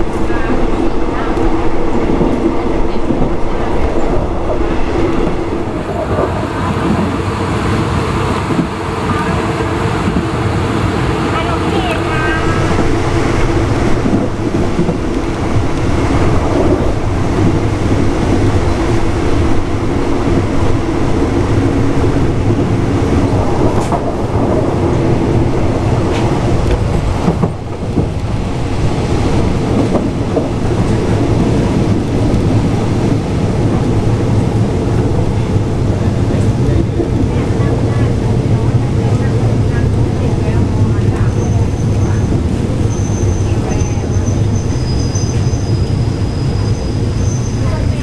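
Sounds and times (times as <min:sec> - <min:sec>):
train rumbling and rattling: 0:00.0 - 0:48.0.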